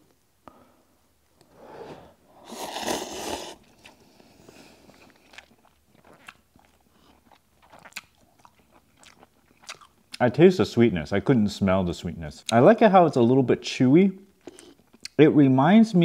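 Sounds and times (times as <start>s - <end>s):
person slurping noodles: 1.5s - 5.5s
person chewing: 2.4s - 10.2s, 14.4s - 15.2s.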